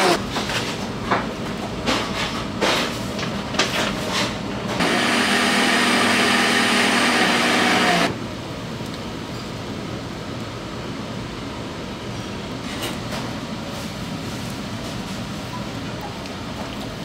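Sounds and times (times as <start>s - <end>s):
electric motor running: 0.0s - 0.2s, 4.8s - 8.2s.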